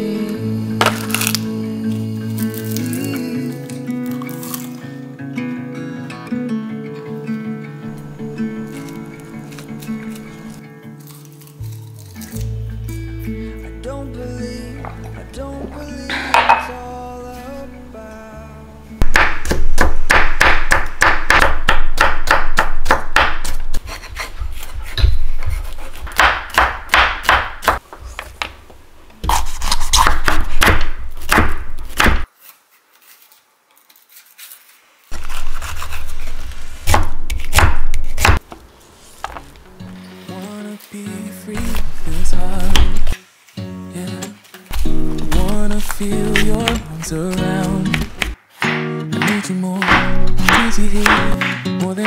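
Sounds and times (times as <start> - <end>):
knife chopping on wooden board: 19.0 - 24.3, 25.0 - 27.8, 29.2 - 32.3, 36.9 - 38.4, 47.6 - 51.7.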